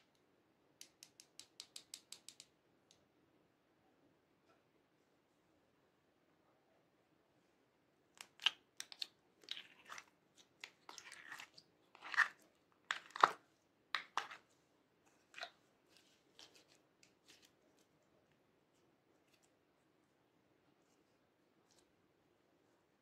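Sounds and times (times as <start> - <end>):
slime squelching and crackling: 8.2 - 18.0.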